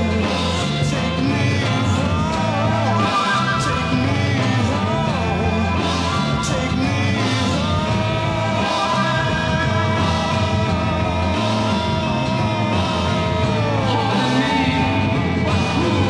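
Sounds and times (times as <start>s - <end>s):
psychedelic rock band playing: 0.0s - 16.0s.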